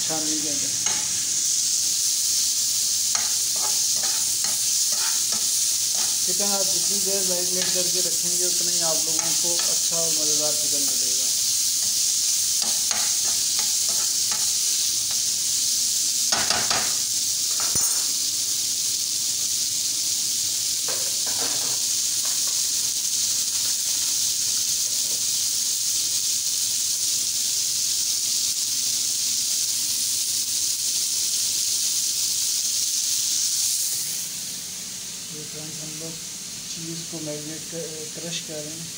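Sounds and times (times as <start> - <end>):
chicken sizzling in oil: 0.0 - 38.9
spatula scraping a pan: 0.8 - 1.2, 3.1 - 6.9, 12.6 - 15.2.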